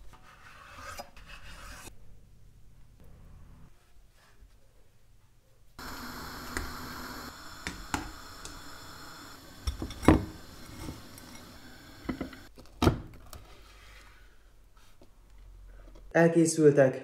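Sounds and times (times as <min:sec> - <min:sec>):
utensils knocking on pots and dishes: 0:09.6 - 0:12.5.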